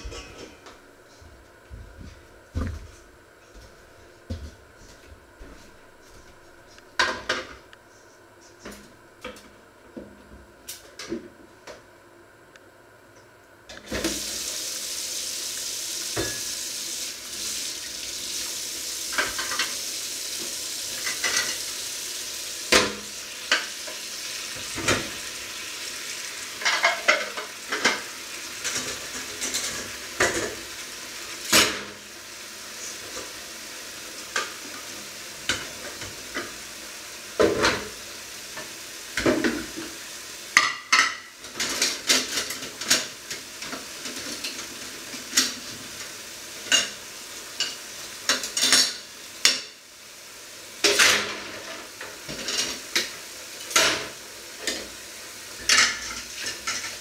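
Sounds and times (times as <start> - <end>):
cutlery and crockery clinking: 0.0 - 0.6.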